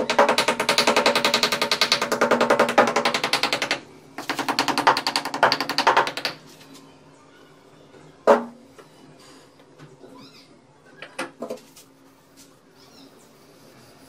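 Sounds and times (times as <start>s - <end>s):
tool tapping on wooden form: 0.0s - 6.4s.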